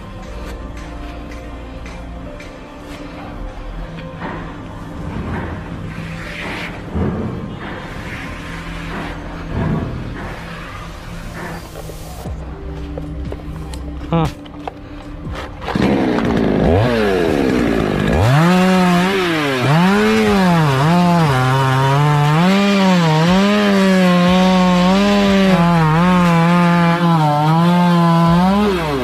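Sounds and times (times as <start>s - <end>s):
chainsaw cutting wood: 15.3s - 29.0s.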